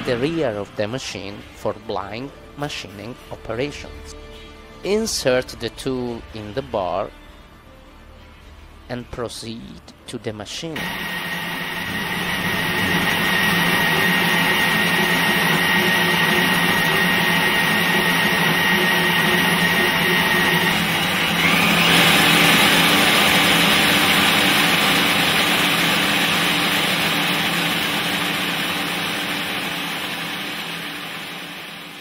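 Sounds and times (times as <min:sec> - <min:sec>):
loud rushing machine noise: 0:10.8 - 0:32.0
machine hum with high whine: 0:10.8 - 0:32.0.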